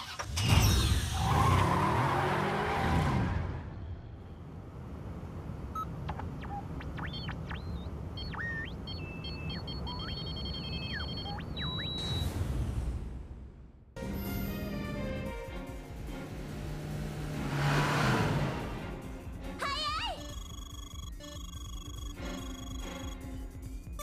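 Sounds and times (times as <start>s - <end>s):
rush of speeding car: 1.1s - 8.2s, 16.0s - 19.1s
electronic bleeps and sweeping tones: 5.8s - 12.4s, 20.0s - 24.0s.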